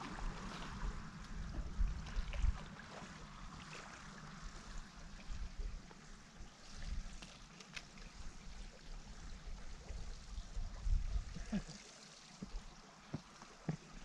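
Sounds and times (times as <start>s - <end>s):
wind rumbling on microphone: 0.0s - 7.2s, 8.1s - 11.6s
faint water noise: 0.0s - 14.0s.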